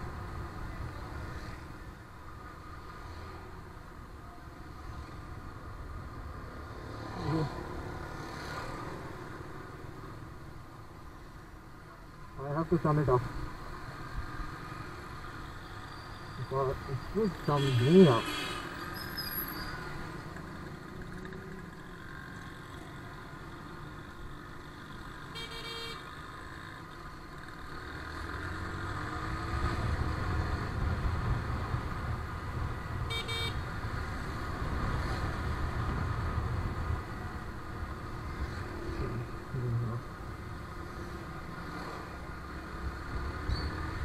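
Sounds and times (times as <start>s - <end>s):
motorcycle engine and road rumble: 0.0s - 44.0s
horn beeps: 33.1s - 33.6s.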